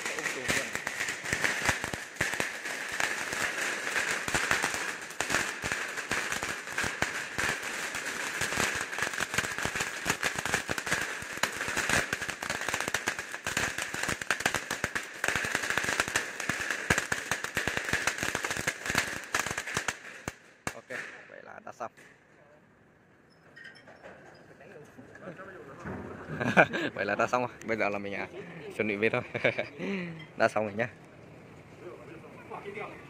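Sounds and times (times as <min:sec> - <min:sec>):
firecrackers crackling: 0:00.0 - 0:22.0, 0:25.5 - 0:29.6.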